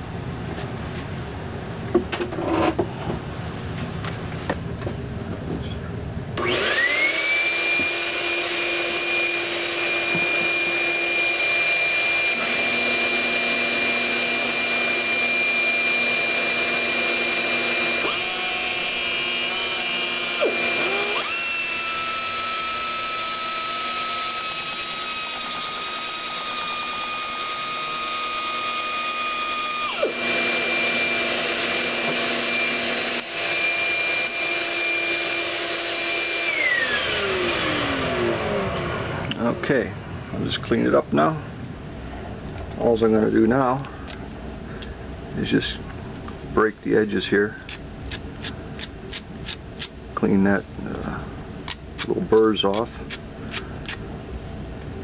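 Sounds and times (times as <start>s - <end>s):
air grinder high whine: 6.4s - 39.8s.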